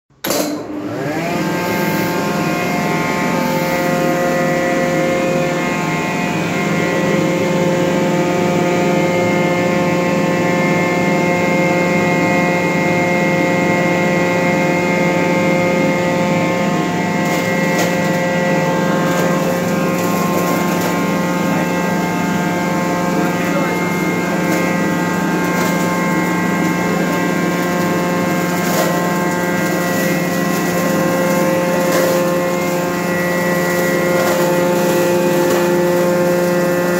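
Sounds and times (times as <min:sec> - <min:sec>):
grinder motor humming: 0:00.1 - 0:36.9
garlic crackling in hopper: 0:16.0 - 0:36.9.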